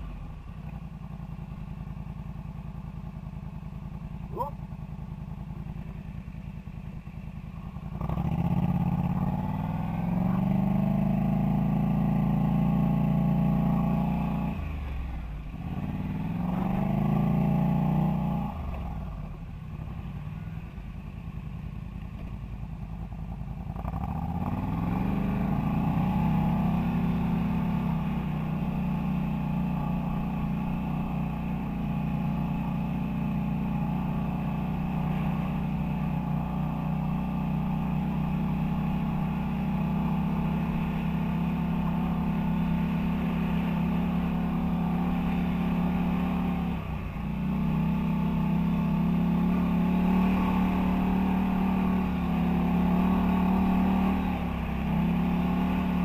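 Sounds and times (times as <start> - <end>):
quad engine revving: 8.0 - 14.7, 15.6 - 18.6, 23.8 - 56.0.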